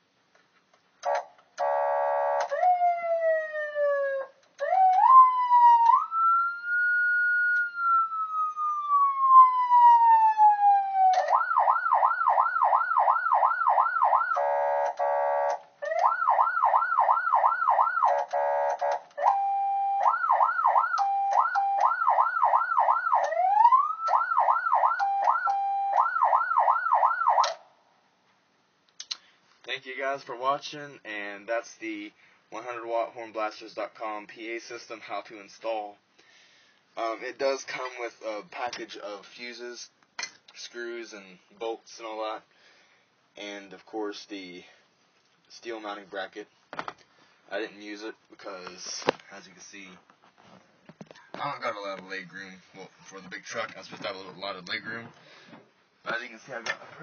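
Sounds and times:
buzzing horn blasts: 1.0s - 2.5s, 14.3s - 15.6s, 18.1s - 19.4s
siren wail: 1.0s - 27.6s
steady siren tones: 1.0s - 27.6s
fast siren yelp: 1.1s - 27.6s.

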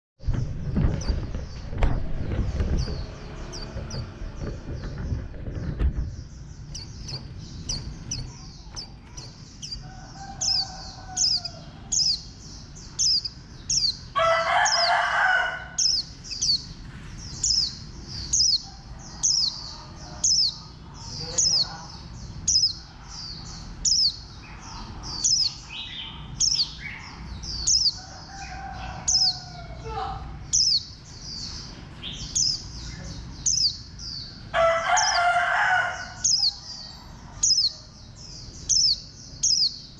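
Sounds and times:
bird chirping: 0.2s - 39.9s
rooster crowing: 9.8s - 12.1s, 14.1s - 15.8s, 28.0s - 29.9s, 34.5s - 37.4s.

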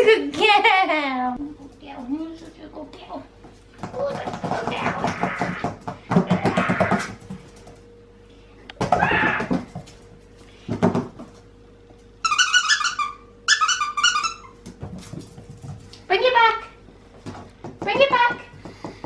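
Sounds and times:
squeaky toy squeaks: 12.2s - 14.6s.

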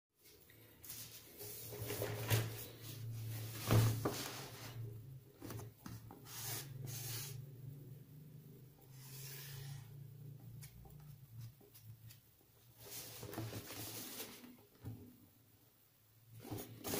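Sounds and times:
cardboard box sliding on paper: 9.0s - 9.9s.

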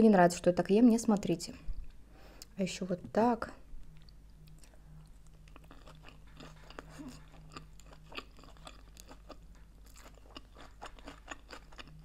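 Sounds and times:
chewing mouth clicks: 3.9s - 12.0s.

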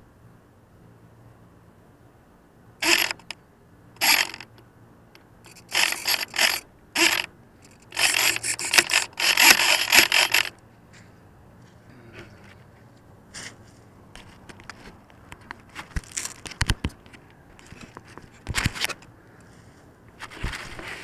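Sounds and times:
scraping on microphone: 15.6s - 21.0s.

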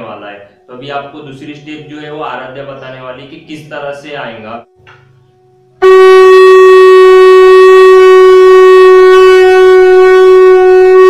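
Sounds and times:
conch shell blast: 5.8s - 11.0s.

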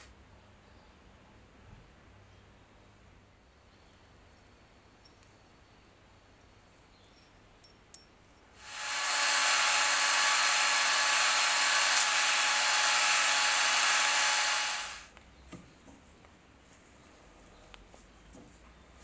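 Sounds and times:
power drill motor whine: 8.6s - 15.1s
sandpaper hissing on metal tube: 8.6s - 15.1s.

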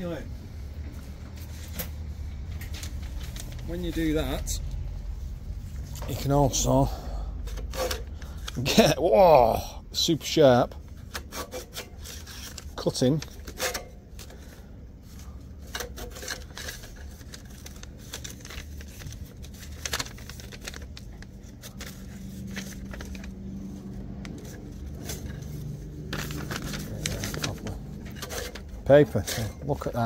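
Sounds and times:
paper crinkling: 1.4s - 4.2s, 11.5s - 30.0s.

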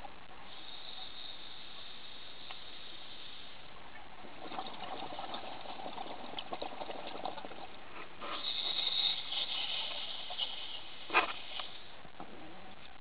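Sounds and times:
regulator inhalation hiss: 0.4s - 3.7s, 8.0s - 12.0s
exhaled bubbles burbling: 3.8s - 11.6s.

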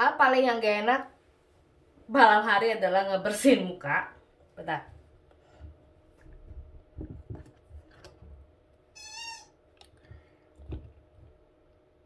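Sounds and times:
cat meowing: 9.0s - 9.6s.

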